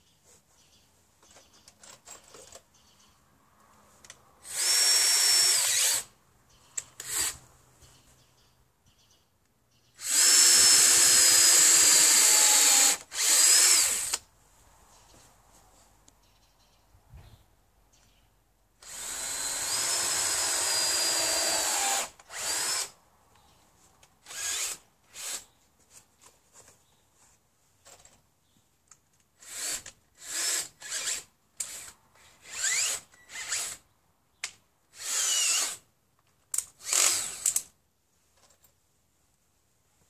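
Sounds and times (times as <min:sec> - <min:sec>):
cordless drill running: 0:04.5 - 0:06.1, 0:10.0 - 0:14.2, 0:18.8 - 0:22.9, 0:24.3 - 0:25.4, 0:35.0 - 0:35.8, 0:36.8 - 0:37.6.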